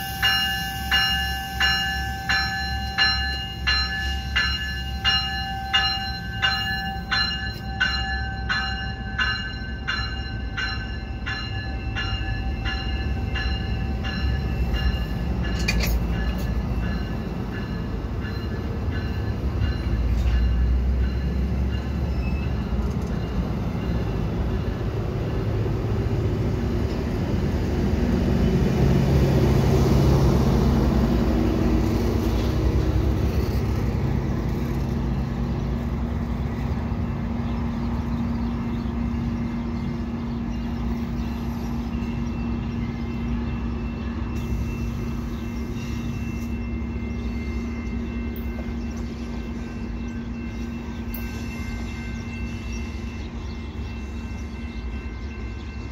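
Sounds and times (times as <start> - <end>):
warning bell ringing: 0.0 - 25.6, 39.8 - 55.9
diesel locomotive engine: 0.0 - 55.9
train wheels rumbling on rail: 0.0 - 55.9.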